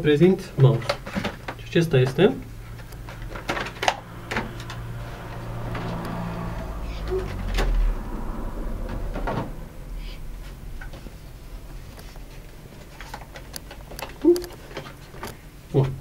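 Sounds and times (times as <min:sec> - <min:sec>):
low bump: 0:04.0 - 0:12.3
packaging rustling and clicking: 0:11.9 - 0:15.4.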